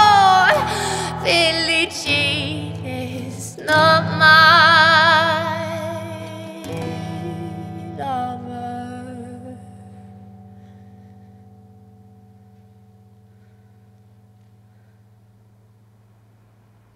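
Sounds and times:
woman singing with vibrato: 0.0s - 10.1s.

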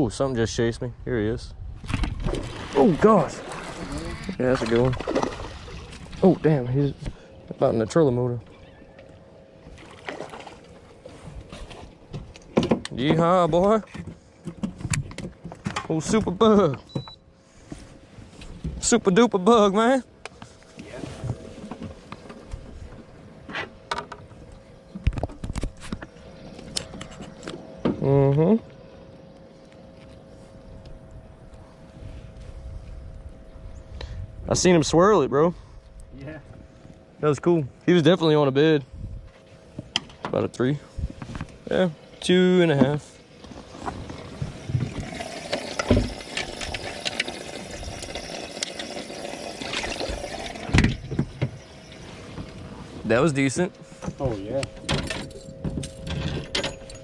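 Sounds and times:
faint steady hum: 0.0s - 57.0s
water splashing and running: 2.2s - 6.2s.

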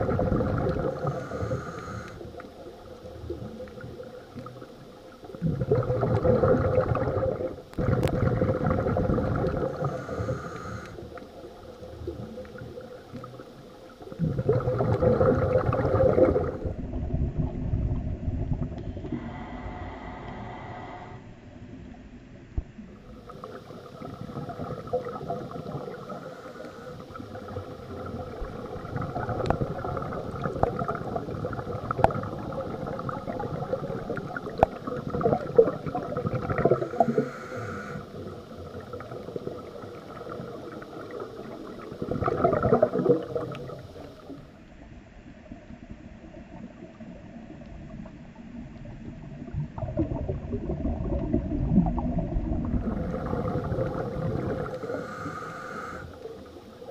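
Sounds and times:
bubbles gurgling: 0.0s - 18.8s, 23.0s - 44.5s, 46.0s - 55.4s
scuba regulator breathing: 0.7s - 2.5s, 9.2s - 11.3s, 18.9s - 21.4s, 25.7s - 27.5s, 36.6s - 38.6s, 52.8s - 56.5s.

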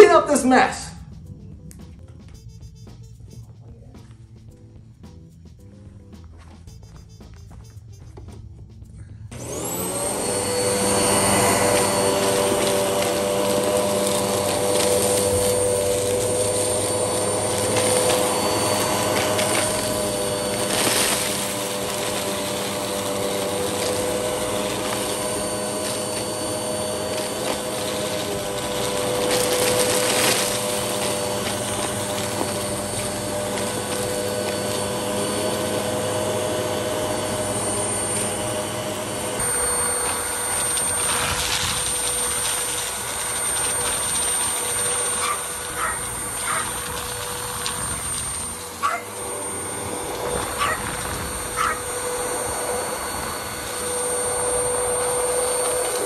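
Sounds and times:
vacuum cleaner running: 9.3s - 56.0s.

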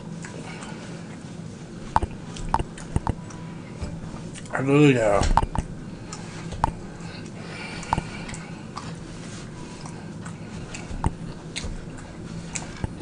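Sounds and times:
steady low hum: 0.0s - 13.0s
mouth clicks and smacks: 1.9s - 3.4s, 5.3s - 8.9s.

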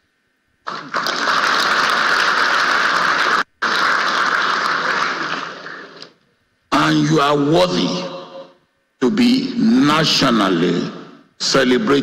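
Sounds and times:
audience applauding: 0.6s - 6.1s.

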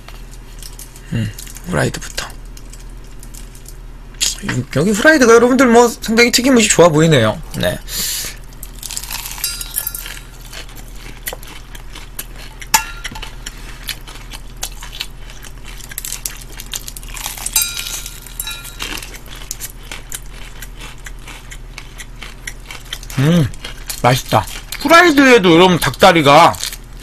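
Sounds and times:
crunching and chewing: 0.0s - 4.5s, 8.4s - 27.0s
light clinks: 9.2s - 10.4s, 17.4s - 19.1s
steel bowl ringing: 9.2s - 10.4s, 12.7s - 13.2s, 17.3s - 19.1s.

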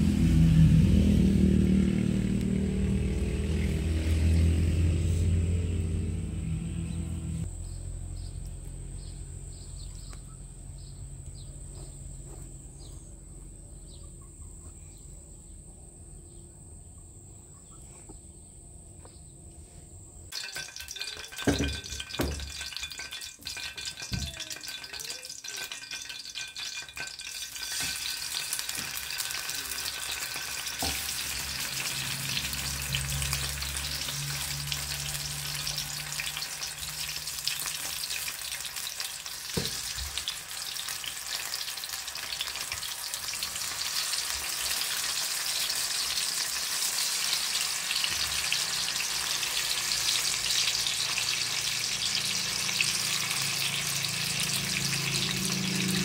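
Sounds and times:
food sizzling in a pan: 20.3s - 56.0s.

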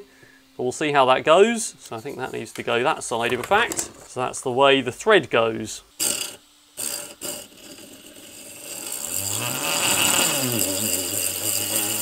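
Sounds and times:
electric motor whining: 8.2s - 12.0s.

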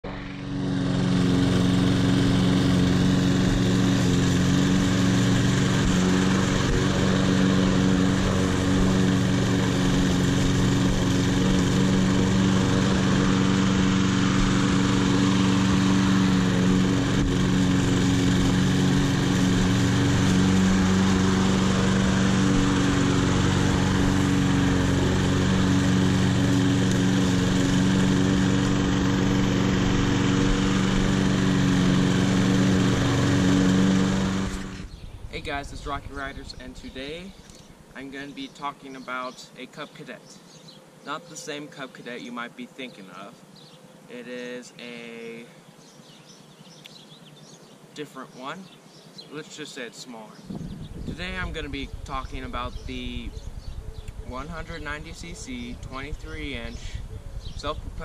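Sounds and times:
lawn mower engine mowing grass: 0.0s - 58.0s.

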